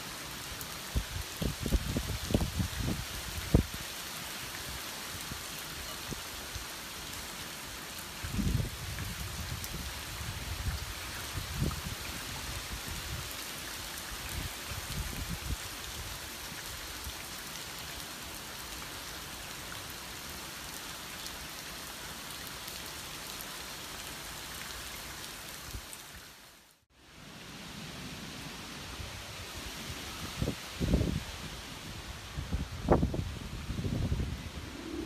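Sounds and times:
heavy rain falling: 0.0s - 35.0s
wind rumbling on microphone: 1.0s - 3.8s, 8.2s - 13.2s, 29.0s - 35.0s.

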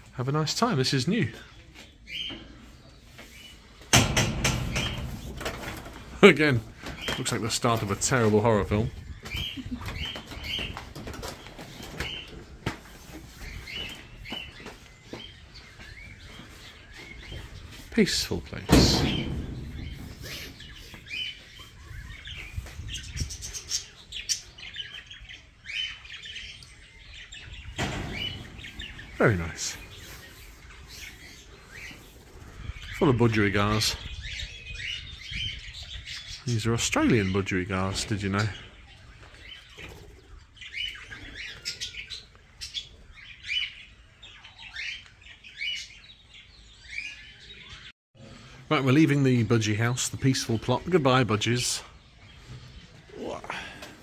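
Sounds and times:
budgerigars chirping: 13.3s - 47.9s.

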